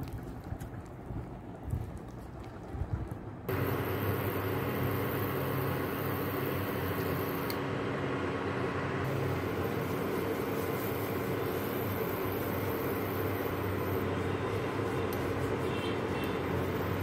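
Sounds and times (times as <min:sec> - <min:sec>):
cooktop fan hum: 0:00.0 - 0:17.0.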